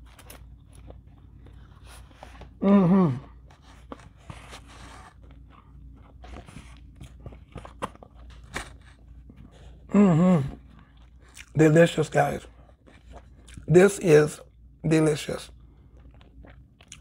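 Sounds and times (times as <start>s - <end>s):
person chewing: 0.0s - 13.8s, 15.5s - 17.0s
voiced hum: 0.0s - 16.4s.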